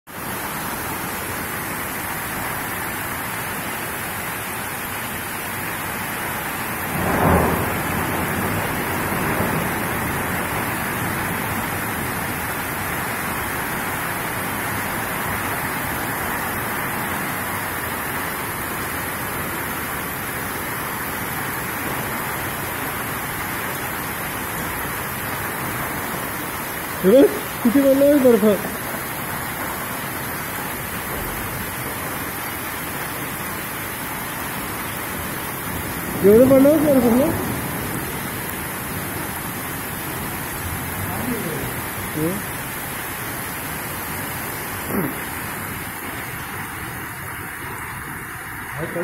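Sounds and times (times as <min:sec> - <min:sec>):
heavy rain pouring: 0:00.1 - 0:49.0
thunder clap: 0:06.8 - 0:12.5, 0:31.0 - 0:32.3.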